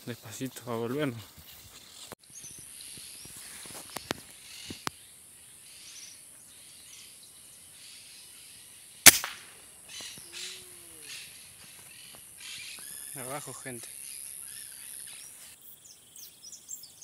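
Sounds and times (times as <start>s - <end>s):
air rifle shot: 9.0s - 9.6s
high-pitched insect buzz: 9.9s - 11.4s.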